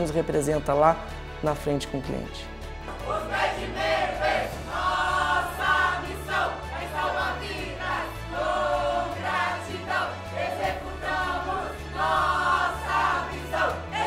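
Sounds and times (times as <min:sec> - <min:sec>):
backing music with bass: 0:02.1 - 0:14.0
group of voices chanting: 0:02.8 - 0:14.0.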